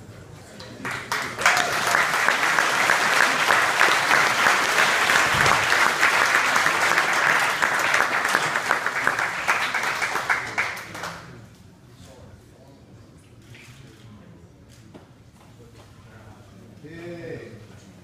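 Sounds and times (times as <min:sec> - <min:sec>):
audience clapping: 0:00.6 - 0:11.4.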